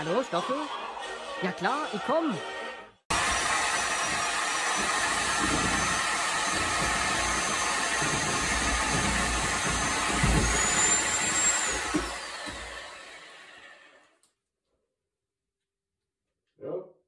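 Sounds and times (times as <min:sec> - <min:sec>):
reciprocating saw cutting wall: 0:03.1 - 0:14.1.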